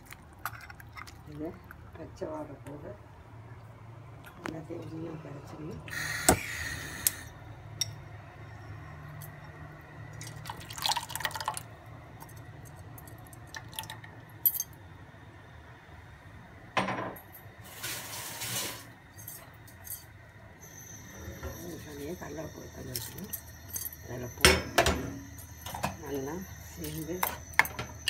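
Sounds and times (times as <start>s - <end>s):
thick liquid pouring into pan: 10.3s - 11.6s.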